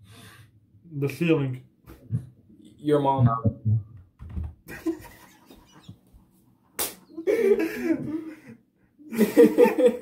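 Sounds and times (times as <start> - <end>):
sharp smack: 6.8 - 7.0.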